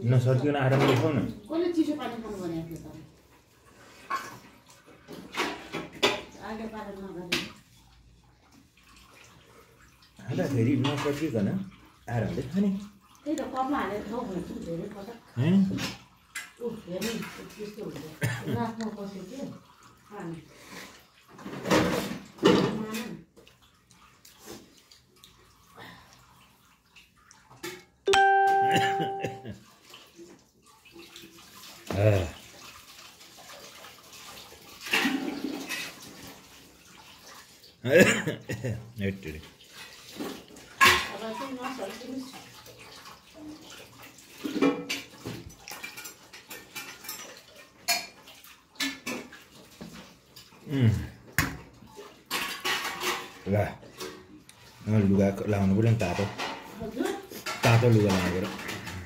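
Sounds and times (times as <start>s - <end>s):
ringing ding: 28.1s - 29.5s.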